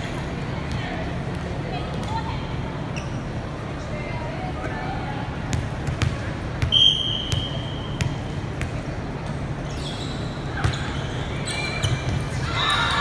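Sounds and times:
sneaker squeaks: 2.0 - 3.6, 5.8 - 13.0
ball bouncing on gym floor: 5.5 - 9.4
whistle blast: 6.7 - 7.8.

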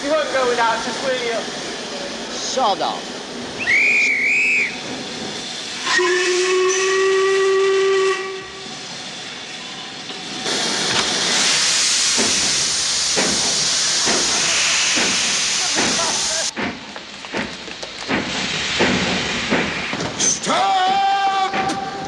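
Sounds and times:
steam hissing: 0.0 - 22.0
heavy locomotive puffs: 3.0 - 22.0
steam locomotive whistle: 3.6 - 4.8, 5.8 - 8.8.

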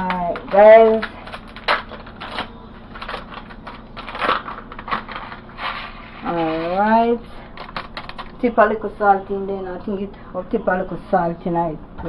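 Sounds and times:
plastic sachet crinkling and tearing: 0.8 - 6.6.

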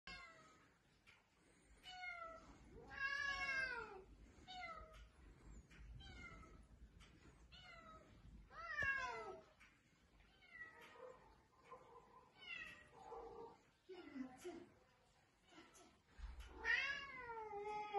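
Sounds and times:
cats meowing: 1.8 - 5.1, 5.8 - 6.7, 7.4 - 13.6, 16.4 - 17.9.

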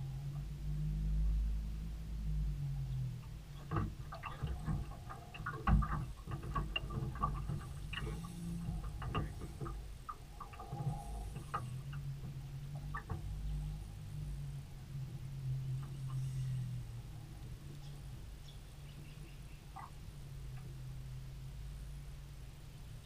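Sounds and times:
low steady hum: 0.0 - 23.0
clicks and knocks on boat deck: 3.6 - 13.3.

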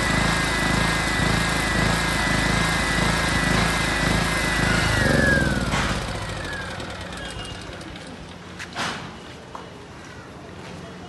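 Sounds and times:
generator running with whine: 0.0 - 8.8.

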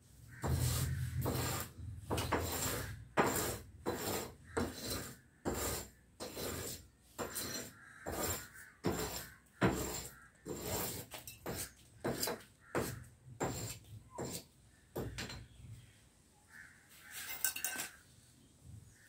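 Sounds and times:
rasping scraping strokes: 0.3 - 14.6.

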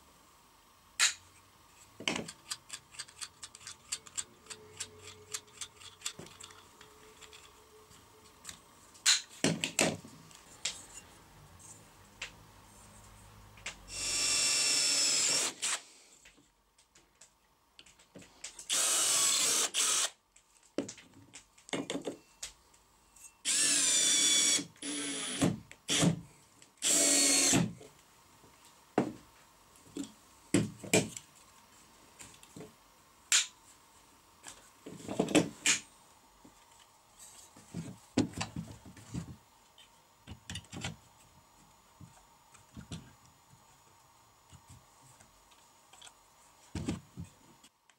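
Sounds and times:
clicks and knocks of parts: 2.0 - 7.6
cordless drill driving screws: 13.9 - 15.8, 18.7 - 20.2, 23.5 - 26.2, 26.8 - 27.7.

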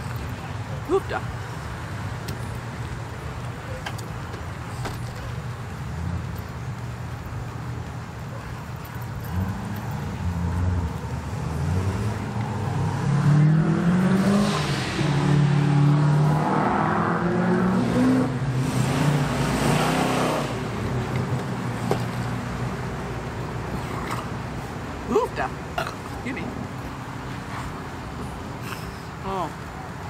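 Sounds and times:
vehicle engine passing by: 9.2 - 24.8.

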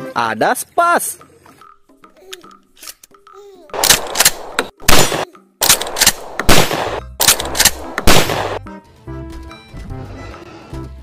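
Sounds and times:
music: 0.0 - 11.0
toy shotgun blasts: 3.8 - 8.6.

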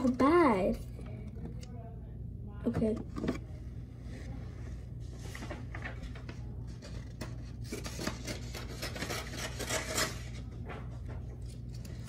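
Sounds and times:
steady low hum: 0.0 - 12.0
paper rustling: 5.0 - 12.0
scissors snipping paper: 7.6 - 10.4.

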